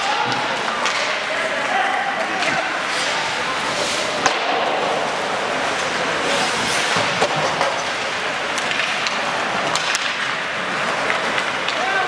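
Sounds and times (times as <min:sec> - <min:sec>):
hockey stick clacks: 0:00.0 - 0:01.3, 0:03.9 - 0:12.0
noisy rink hiss: 0:00.3 - 0:12.0.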